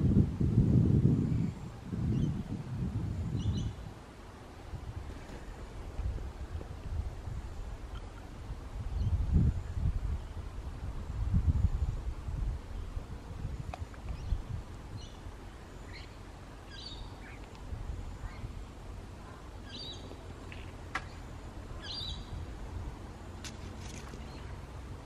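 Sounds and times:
low outdoor rumble: 0.0s - 25.0s
small birds chirping: 13.7s - 18.6s, 19.2s - 22.4s, 23.4s - 24.6s.

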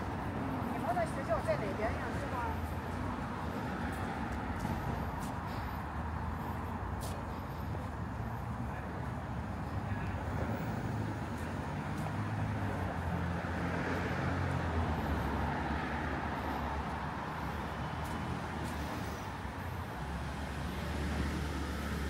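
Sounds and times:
car engines running: 0.0s - 22.0s.

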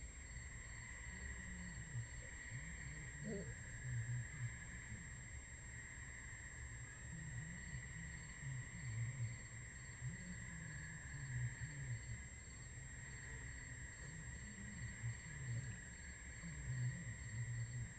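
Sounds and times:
crickets chirping: 0.0s - 17.9s.

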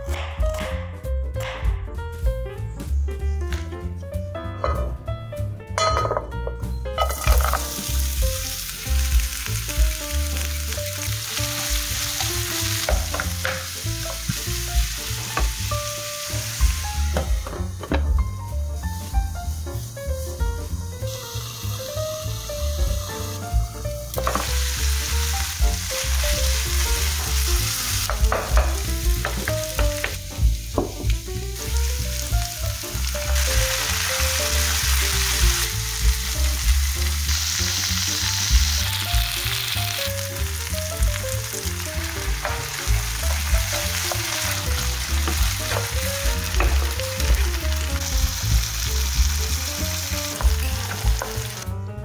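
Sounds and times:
onions sizzling in oil: 7.0s - 51.7s.

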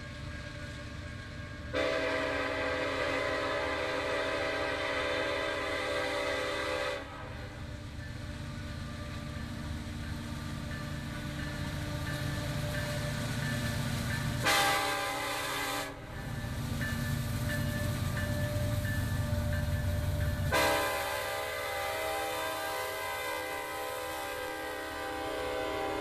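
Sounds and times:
diesel locomotives rumbling: 0.0s - 26.0s
train air horn blasts: 1.7s - 7.5s, 14.4s - 16.0s, 20.5s - 26.0s.

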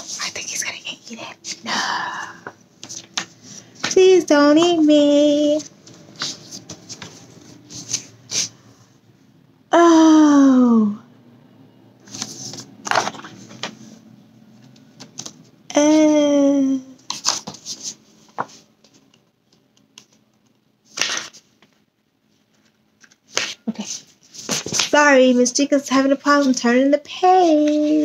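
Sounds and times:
book pages rustling: 2.4s - 4.0s, 5.4s - 8.6s, 12.0s - 14.0s, 14.6s - 15.5s, 17.0s - 25.0s, 26.2s - 28.0s.

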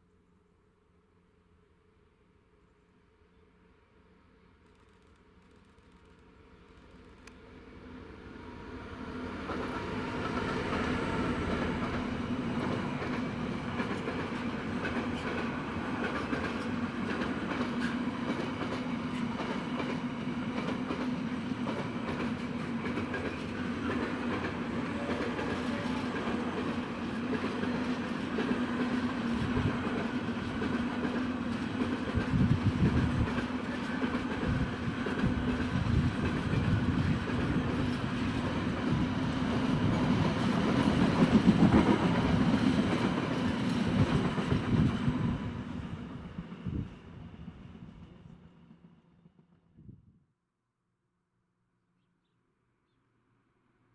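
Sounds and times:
diesel locomotive passing: 6.7s - 49.8s
train wheel clatter: 9.5s - 45.2s.

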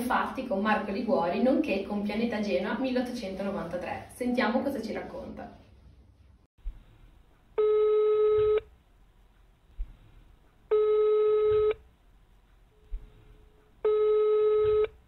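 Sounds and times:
telephone ringback tone: 7.6s - 8.6s, 10.7s - 11.8s, 13.8s - 15.0s.

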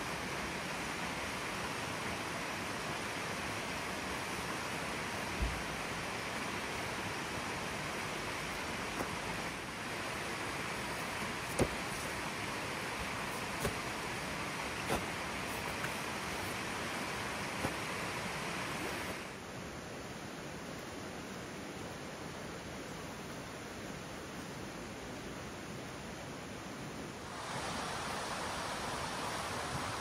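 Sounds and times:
rushing outdoor background noise: 0.0s - 30.0s
camping gear clicking and knocking: 10.9s - 12.3s, 13.0s - 14.0s, 14.8s - 16.6s.

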